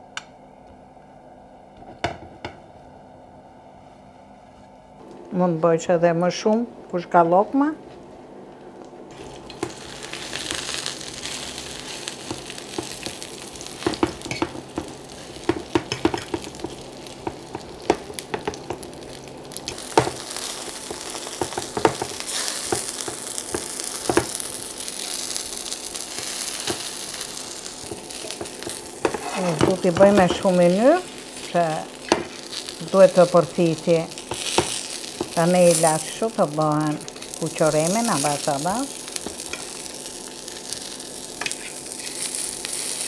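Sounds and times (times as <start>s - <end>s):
chicken sizzling in oil: 9.1s - 43.0s
fork scraping pan: 29.0s - 29.7s.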